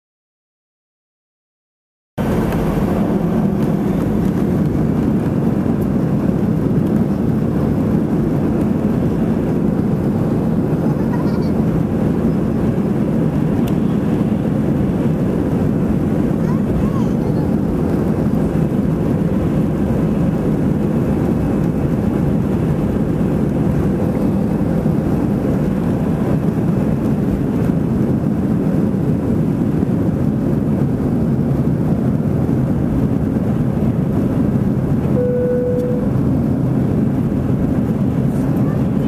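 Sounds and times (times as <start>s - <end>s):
rush of air: 2.2s - 10.8s
jet engines at takeoff thrust: 2.2s - 39.0s
steady tone: 35.1s - 36.4s.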